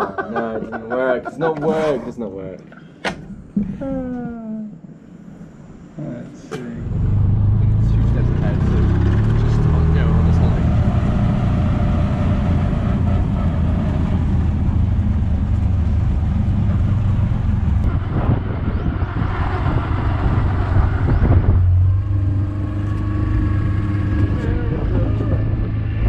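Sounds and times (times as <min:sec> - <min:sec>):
road and wind noise: 0:05.4 - 0:26.0
auto-rickshaw engine running: 0:06.8 - 0:26.0.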